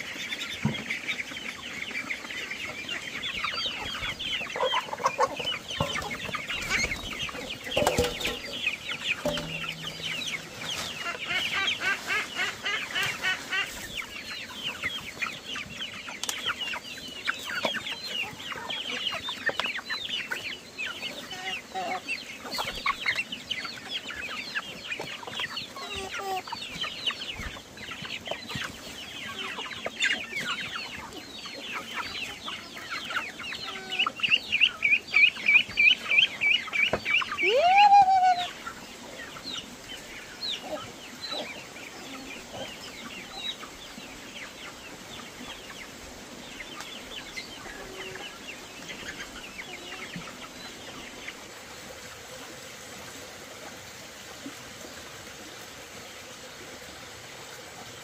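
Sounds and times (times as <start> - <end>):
chicks and ducklings peeping: 0.0 - 58.0.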